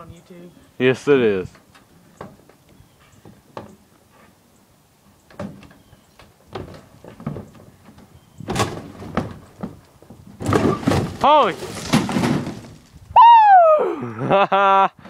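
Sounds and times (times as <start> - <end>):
knocks and bangs on wood: 5.3 - 5.7, 6.5 - 12.8
wooden door crashing: 8.4 - 12.9.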